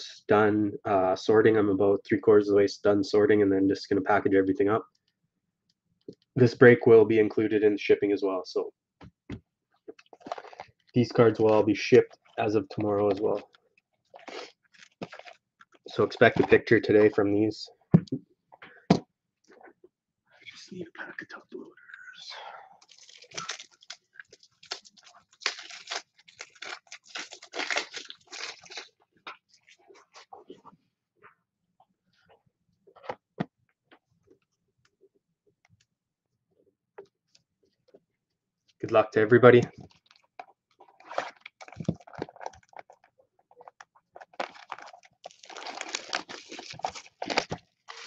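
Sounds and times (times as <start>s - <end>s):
plastic wrapping crinkling and tearing: 10.0s - 16.6s, 22.8s - 29.0s, 39.9s - 48.0s
cardboard tearing: 24.6s - 28.9s, 44.4s - 48.0s.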